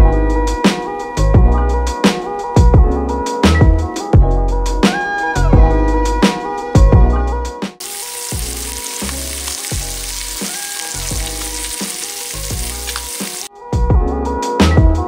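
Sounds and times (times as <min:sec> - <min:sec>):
fish sizzling in a pan: 0:07.8 - 0:13.5.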